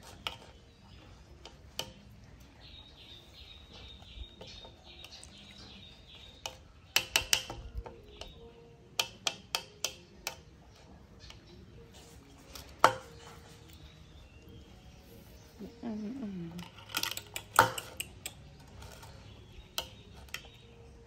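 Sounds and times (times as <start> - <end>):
utensil clicking on ceramic plate: 6.3 - 10.6.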